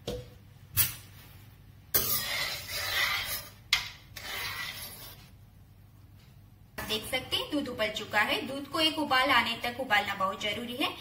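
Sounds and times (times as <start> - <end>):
spoon scraping steel pan: 2.0 - 3.6.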